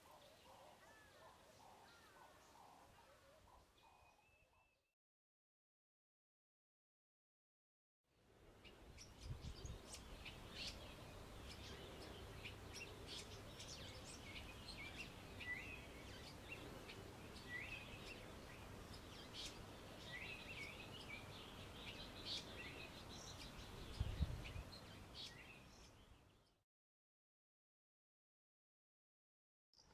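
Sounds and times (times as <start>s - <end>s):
bird twittering song: 0.0s - 4.8s, 8.6s - 26.6s.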